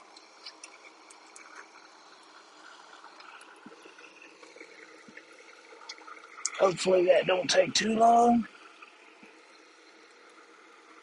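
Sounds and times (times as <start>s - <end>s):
gas stove hissing: 0.0s - 11.0s.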